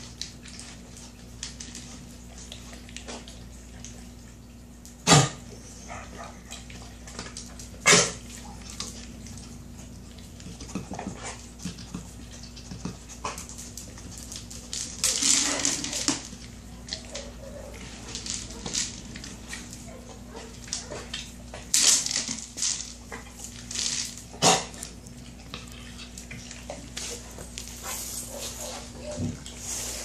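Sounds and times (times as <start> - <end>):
kibble rattling inside toy: 12.7 - 24.9
toy clattering on hard floor: 14.3 - 16.4, 17.8 - 19.4.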